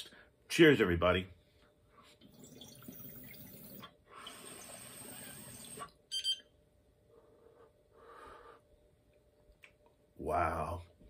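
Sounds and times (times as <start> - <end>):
water bubbling in glass bubbler: 2.3 - 3.8.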